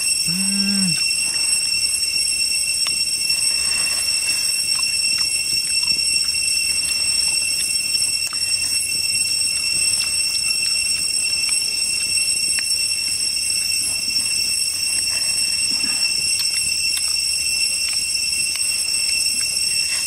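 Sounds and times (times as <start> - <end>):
cicadas droning: 0.0 - 20.0
person humming: 0.3 - 1.0.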